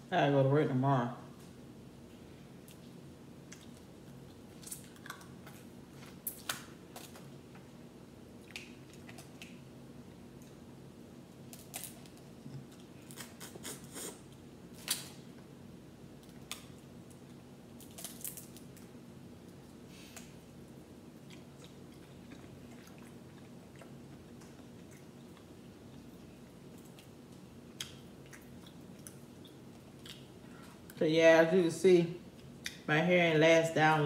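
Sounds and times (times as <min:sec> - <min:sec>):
low steady hum: 0:00.0 - 0:34.0
crawfish shells cracking: 0:11.4 - 0:13.4, 0:16.2 - 0:19.0.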